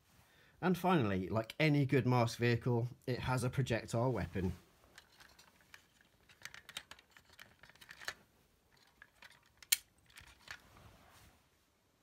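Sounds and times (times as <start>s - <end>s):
toy car rustling on carpet: 4.3s - 11.6s
plastic toy clicks and rattles: 4.9s - 10.6s.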